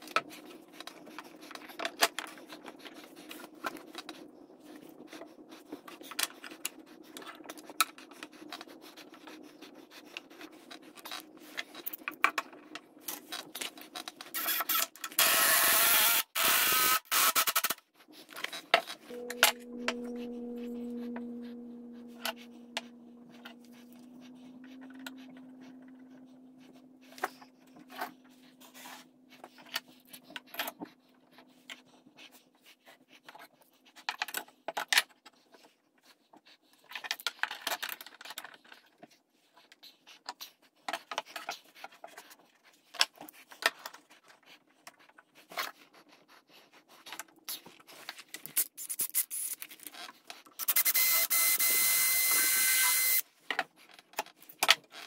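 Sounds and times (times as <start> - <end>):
cordless drill drilling into wood: 14.4 - 17.7, 50.6 - 53.2.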